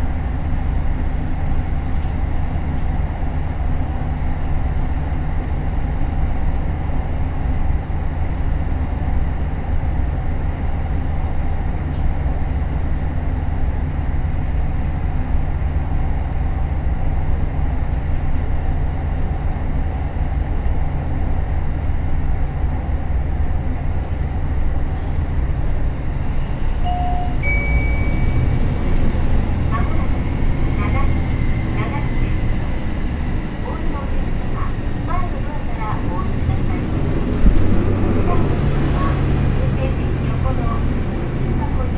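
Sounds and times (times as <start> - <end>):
diesel engine droning: 22.1 - 41.9
brief high tone: 26.8 - 28.6.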